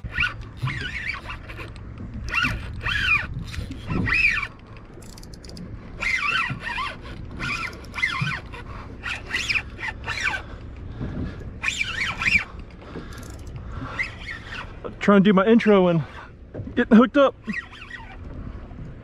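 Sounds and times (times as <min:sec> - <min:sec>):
spinning reel zinging: 0:02.3 - 0:10.3.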